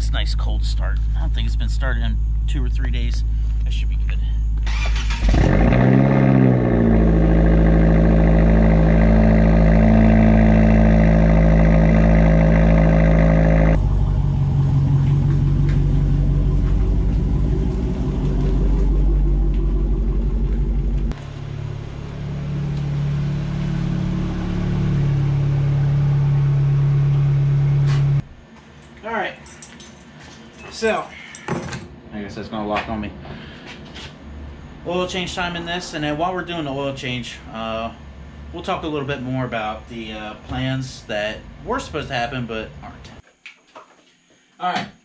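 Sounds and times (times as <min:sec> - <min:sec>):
deep engine rumble: 0:00.0 - 0:28.5.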